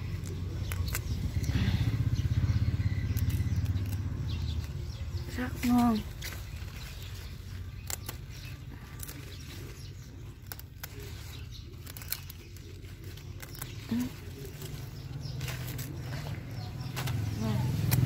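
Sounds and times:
leaves rustling: 0:00.0 - 0:18.0.

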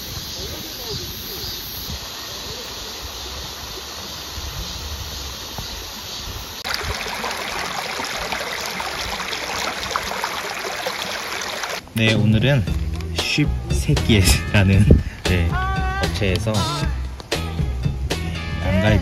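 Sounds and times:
stream running over rocks: 0:00.0 - 0:12.0.

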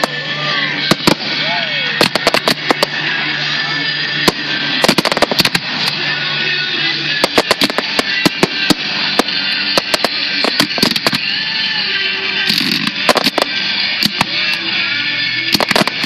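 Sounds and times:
background music: 0:00.0 - 0:16.0
fireworks crackling: 0:00.0 - 0:16.0
fireworks shells bursting: 0:00.8 - 0:03.1, 0:04.2 - 0:06.0, 0:07.1 - 0:11.4, 0:12.5 - 0:14.7, 0:15.5 - 0:16.0.

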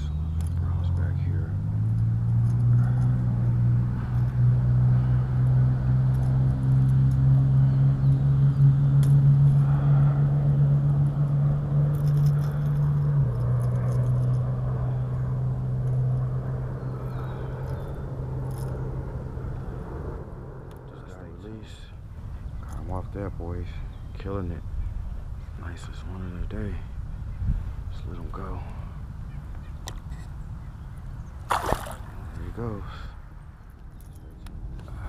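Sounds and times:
low motor hum: 0:00.0 - 0:25.6.

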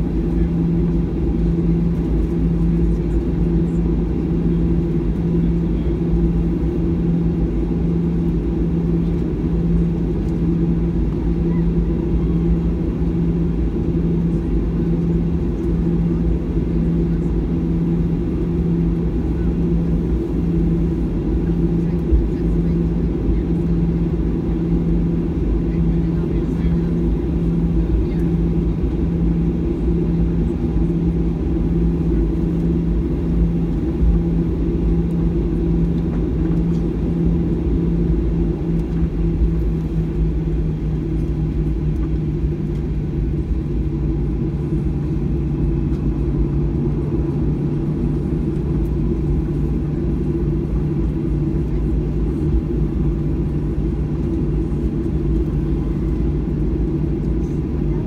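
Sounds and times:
airplane cabin engine drone: 0:00.0 - 0:58.0.

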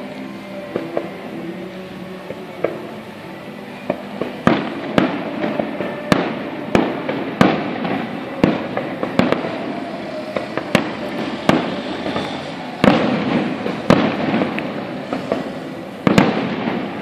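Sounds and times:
firework shells bursting: 0:10.3 - 0:17.0.

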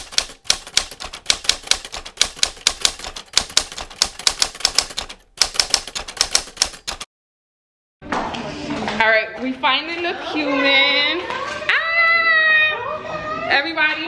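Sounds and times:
rapid sharp clicks: 0:00.0 - 0:07.1.

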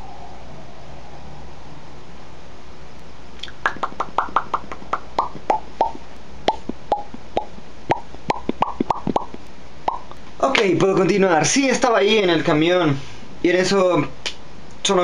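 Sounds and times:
man making mouth pops: 0:03.4 - 0:10.2.

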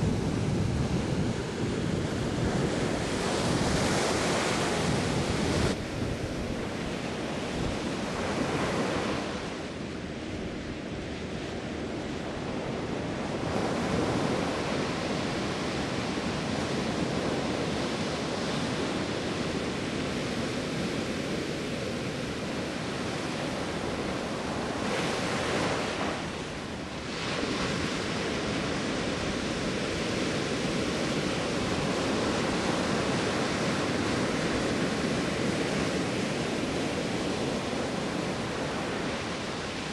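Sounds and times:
ocean surf breaking: 0:00.0 - 0:09.8, 0:22.4 - 0:39.9.

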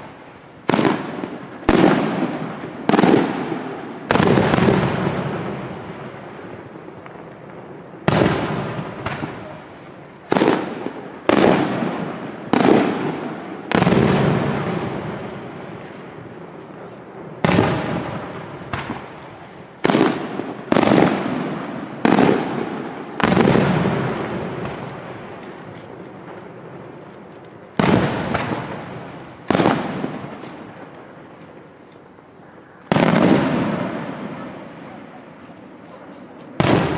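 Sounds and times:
firework shells bursting: 0:17.4 - 0:36.9.

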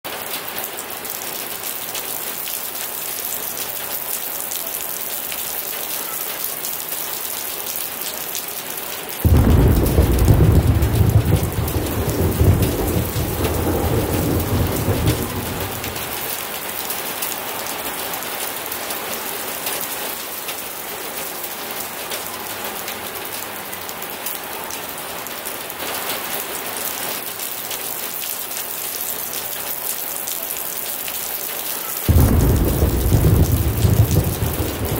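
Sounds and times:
heavy rain: 0:00.0 - 0:34.9
thunder clap and rumble: 0:09.2 - 0:16.3, 0:32.1 - 0:34.9.

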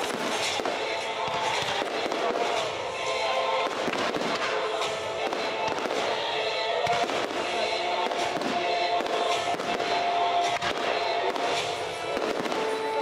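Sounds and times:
fireworks bangs and crackles: 0:00.0 - 0:13.0
music playing: 0:00.0 - 0:13.0.

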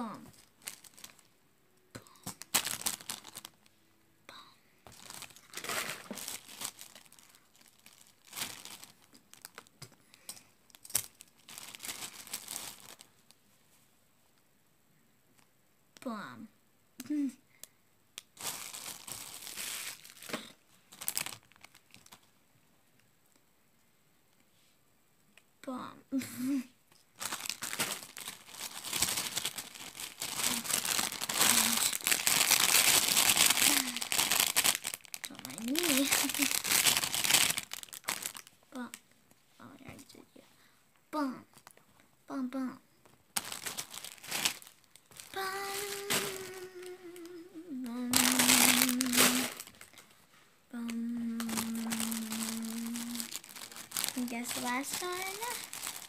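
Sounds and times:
plastic bag crinkling: 0:00.3 - 0:01.4, 0:02.2 - 0:03.8, 0:04.9 - 0:13.3, 0:18.3 - 0:22.3, 0:27.0 - 0:38.6, 0:43.3 - 0:56.0.

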